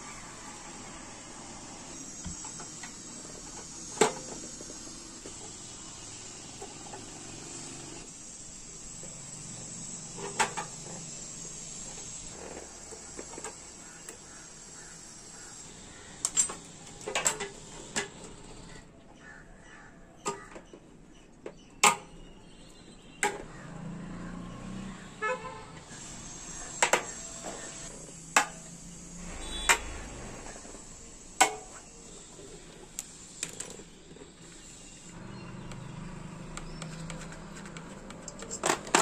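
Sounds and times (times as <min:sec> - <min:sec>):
short horn toot: 0:29.2 - 0:30.2.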